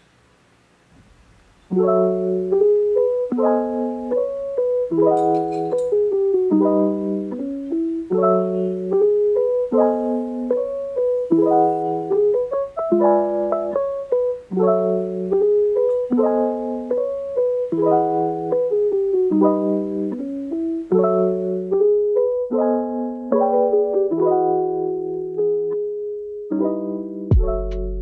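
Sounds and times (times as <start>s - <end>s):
instrumental background music: 1.7s - 28.0s.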